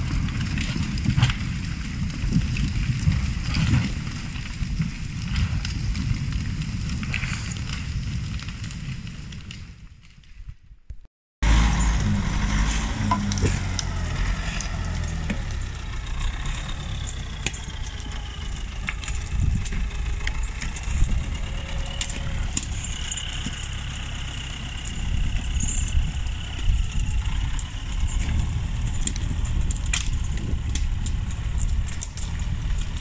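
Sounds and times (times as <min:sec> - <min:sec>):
diesel engine running under load: 0:00.0 - 0:04.1, 0:11.4 - 0:33.0.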